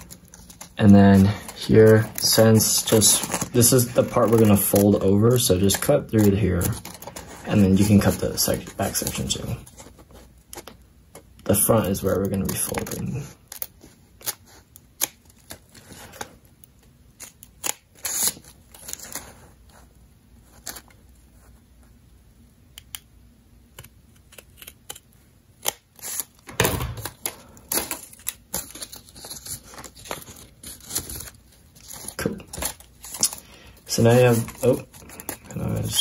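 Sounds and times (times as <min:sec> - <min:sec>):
scissors snipping paper: 0:00.0 - 0:05.0, 0:23.7 - 0:26.4
paper rustling: 0:00.0 - 0:16.5, 0:26.0 - 0:36.0.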